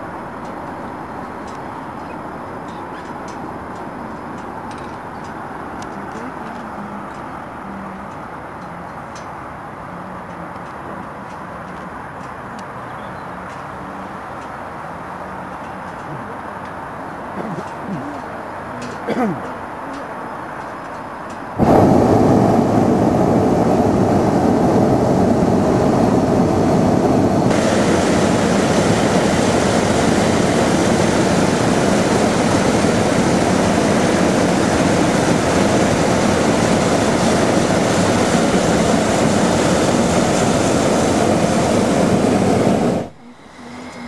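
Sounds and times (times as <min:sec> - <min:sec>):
propane burner roaring: 0:21.6 - 0:44.0.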